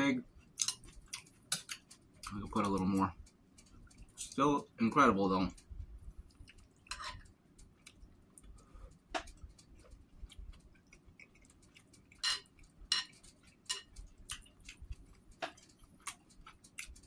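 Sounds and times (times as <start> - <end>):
chewing with wet mouth clicks: 0.4 - 4.2, 5.5 - 17.0
metal spoon scraping bowl: 6.9 - 7.2.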